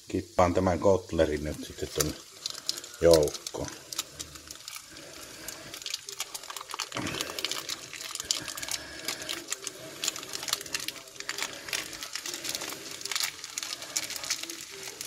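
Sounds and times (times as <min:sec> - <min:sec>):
vegetables sizzling in a wok: 0:00.0 - 0:15.0
small clicks and pops: 0:05.6 - 0:15.0.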